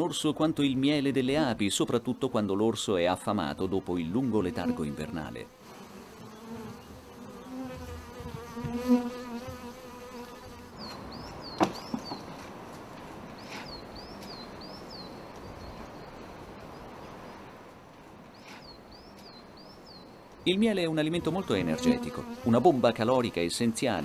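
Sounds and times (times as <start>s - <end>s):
bees buzzing: 3.9s - 12.4s, 20.9s - 23.0s.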